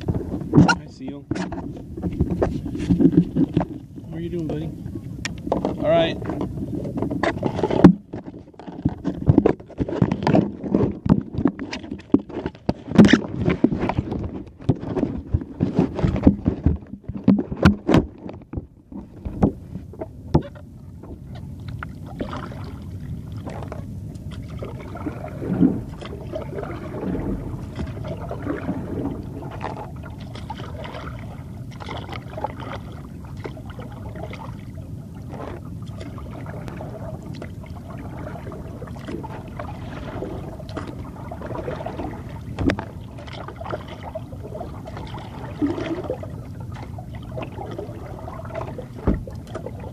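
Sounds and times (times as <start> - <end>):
knocks and rubbing: 0.0 - 3.8
water wash and paddle strokes: 0.0 - 49.9.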